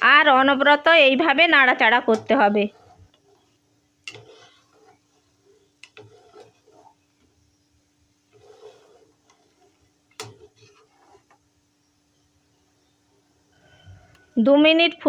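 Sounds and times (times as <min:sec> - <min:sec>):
faint steady hum: 0:00.0 - 0:15.0
spatula stirring soup: 0:00.8 - 0:14.2.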